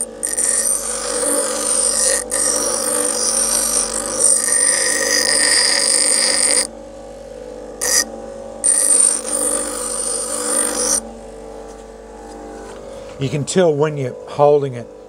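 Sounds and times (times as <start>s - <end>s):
grinder wheel grinding steel: 0.0s - 6.7s, 7.8s - 11.0s
grinder motor hum: 0.0s - 13.3s.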